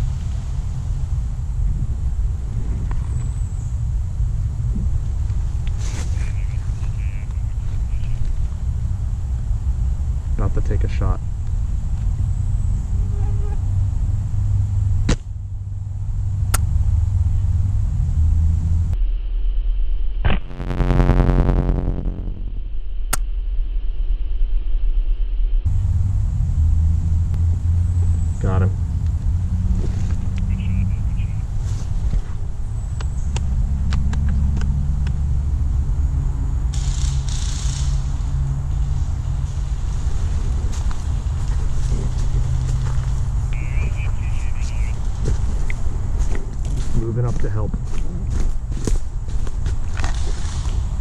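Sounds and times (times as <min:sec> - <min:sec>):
steady low rumble: 0:00.0 - 0:51.0
microphone handling noise: 0:20.2 - 0:22.8, 0:39.8 - 0:47.0.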